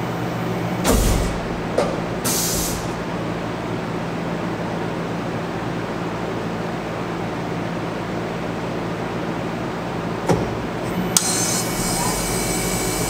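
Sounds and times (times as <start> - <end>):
milling machine humming: 0.3 - 3.8, 10.3 - 13.0
thump: 0.9 - 2.0
short hiss of air: 2.2 - 3.0.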